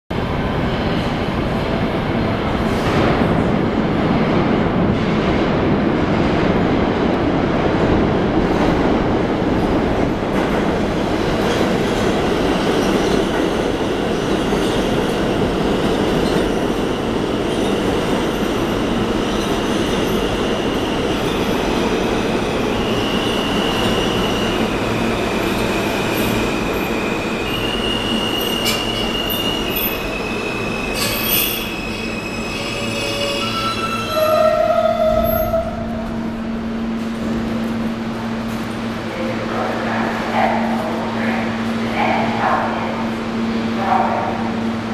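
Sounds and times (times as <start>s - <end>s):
subway train rumbling: 0.1s - 44.9s
high whining brake squeals: 27.3s - 35.8s.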